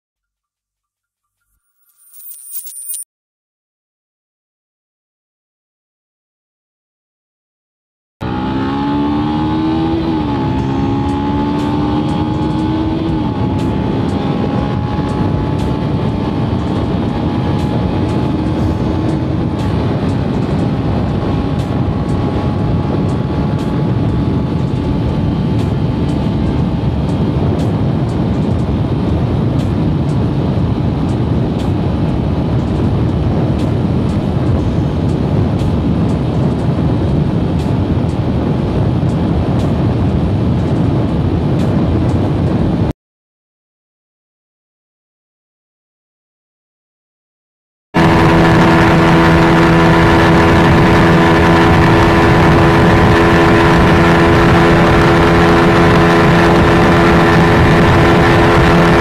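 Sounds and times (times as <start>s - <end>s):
motorcycle engine revving: 8.2s - 41.0s, 48.0s - 59.0s
wind rush: 8.2s - 42.9s, 48.0s - 59.0s.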